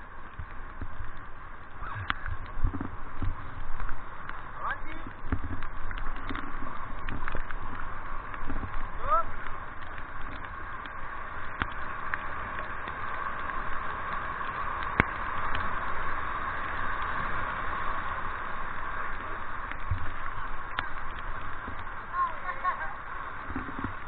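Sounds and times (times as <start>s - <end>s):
water rushing through rapids: 0.0s - 24.0s.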